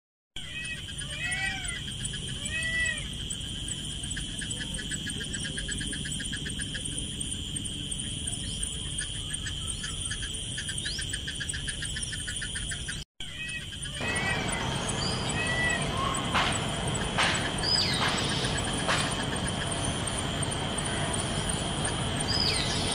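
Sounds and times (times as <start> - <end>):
peafowl calling: 0.4 - 3.1, 9.1 - 22.9
bird chirp: 0.4 - 22.9
fast pulsing chirp: 0.4 - 22.9
insect drone: 0.4 - 22.9.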